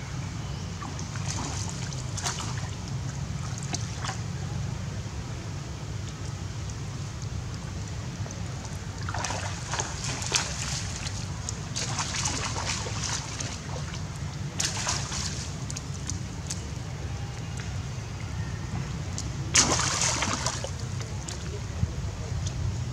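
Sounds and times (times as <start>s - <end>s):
steady low rumble: 0.0s - 22.9s
monkeys splashing through shallow water: 0.8s - 4.4s, 8.3s - 17.7s, 19.2s - 21.7s.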